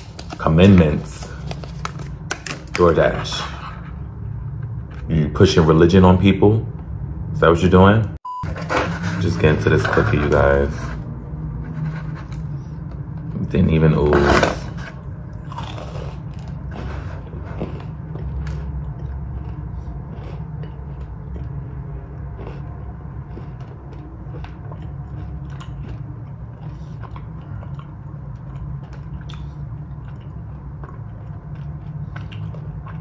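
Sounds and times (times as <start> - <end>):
person chewing crunchy cookie: 14.2 - 33.0.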